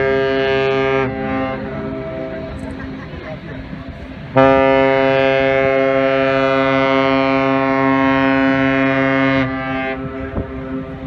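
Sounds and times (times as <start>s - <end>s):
ship horn blast: 0.0s - 11.0s.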